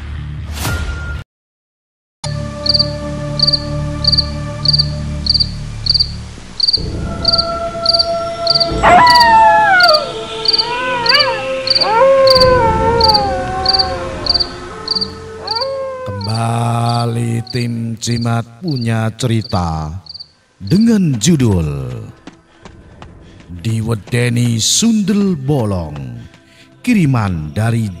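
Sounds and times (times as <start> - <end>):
crickets chirping: 2.5 - 21.3
steady drone: 2.9 - 16.2
falling wailing cry: 7.2 - 17.7.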